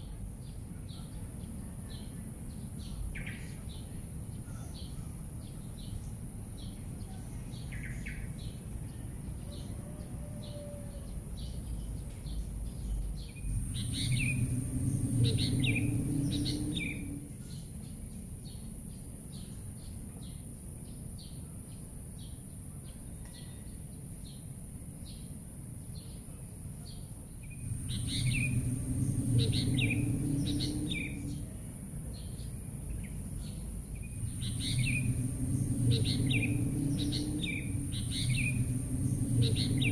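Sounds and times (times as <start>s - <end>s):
small birds chirping: 0.0s - 25.3s, 26.0s - 39.9s
low rumble: 11.0s - 18.3s, 27.4s - 39.9s
steady high hiss: 12.5s - 19.7s, 26.6s - 39.9s.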